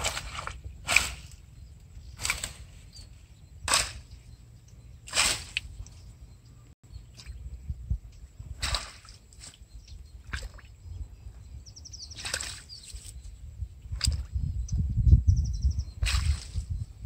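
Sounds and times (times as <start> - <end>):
stick swishing through plants: 0.0 - 1.4, 2.1 - 4.2, 5.0 - 6.0, 8.6 - 9.6, 12.1 - 13.2, 16.0 - 16.8
leaves rustling: 0.0 - 4.1.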